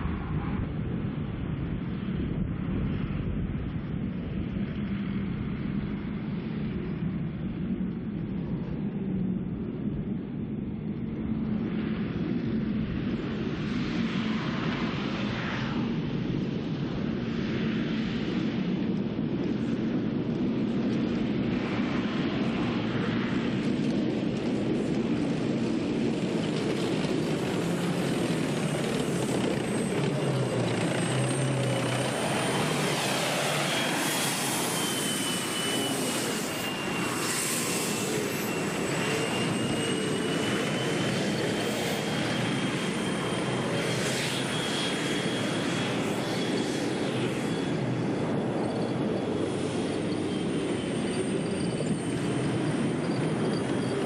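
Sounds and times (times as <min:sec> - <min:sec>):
loud engine noise: 0:25.2 - 0:44.2
thin high whine: 0:27.3 - 0:44.6.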